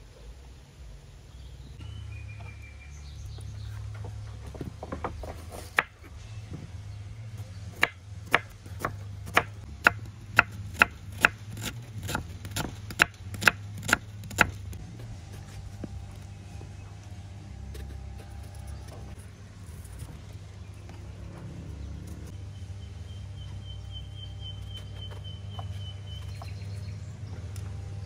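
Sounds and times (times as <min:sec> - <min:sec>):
knife chopping on wooden board: 0:07.8 - 0:14.8.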